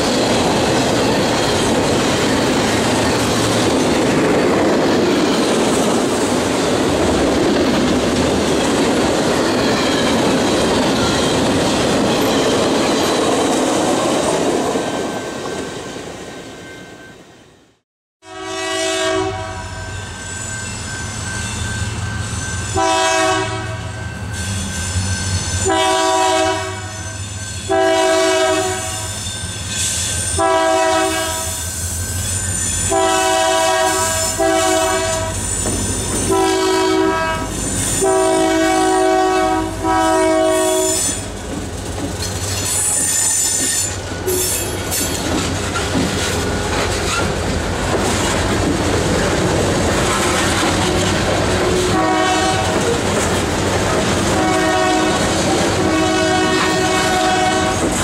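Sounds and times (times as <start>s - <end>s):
high wheel squeals: 8.9s - 17.2s, 19.6s - 23.0s, 23.8s - 25.8s, 28.9s - 30.4s, 31.4s - 33.1s, 34.0s - 39.0s, 40.5s - 41.4s, 42.2s - 47.4s
locomotive air horn blasts: 18.2s - 20.2s, 22.7s - 24.0s, 25.6s - 29.2s, 30.4s - 31.7s, 32.8s - 35.5s, 36.3s - 41.3s, 51.7s - 52.8s, 54.3s - 58.0s
train wheels clattering: 33.6s - 36.6s, 40.5s - 58.0s.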